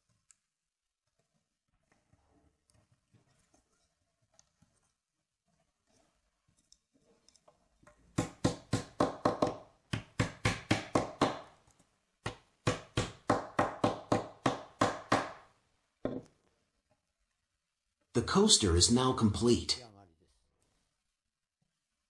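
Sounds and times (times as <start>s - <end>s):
wooden block tapping wood strips: 6.6s - 16.3s.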